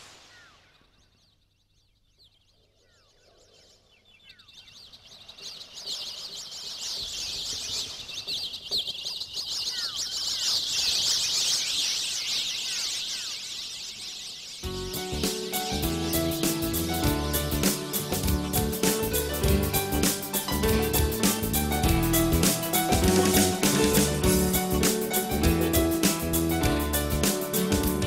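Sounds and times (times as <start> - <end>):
birds chirping and twittering: 0.0 - 28.0
falling whistled bird calls: 0.0 - 28.0.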